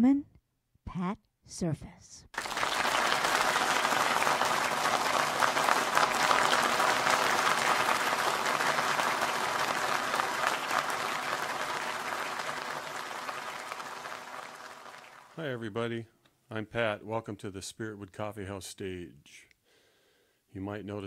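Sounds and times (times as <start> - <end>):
audience applauding: 2.4 - 15.5.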